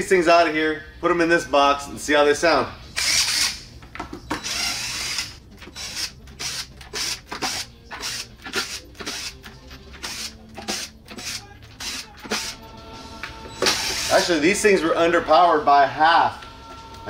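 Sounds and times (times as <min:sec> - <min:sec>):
cordless drill running in spurts: 0:03.0 - 0:03.6, 0:04.4 - 0:09.3, 0:10.0 - 0:12.6, 0:13.7 - 0:14.3.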